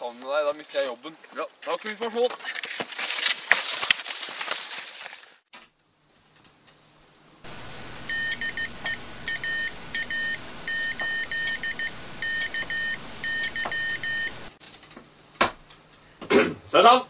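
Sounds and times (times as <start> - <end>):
morse code beeps: 7.5 - 14.5
radio hiss: 7.5 - 14.5.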